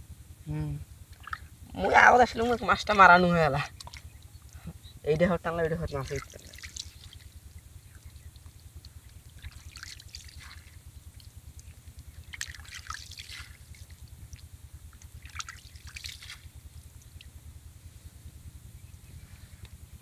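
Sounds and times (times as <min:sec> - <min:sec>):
steady low rumble: 0:00.0 - 0:20.0
hands splashing in wet mud: 0:06.1 - 0:07.3, 0:09.3 - 0:10.8, 0:11.6 - 0:14.0, 0:15.0 - 0:16.5.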